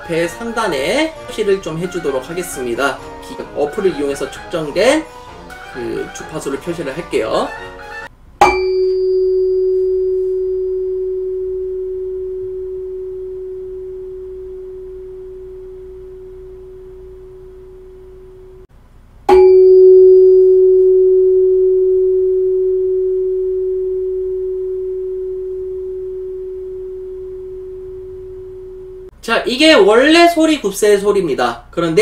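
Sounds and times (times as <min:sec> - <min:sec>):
tuning fork ringing: 0:08.4 - 0:18.6, 0:19.3 - 0:29.1
tuning fork struck: 0:08.4 - 0:18.6, 0:19.3 - 0:29.1.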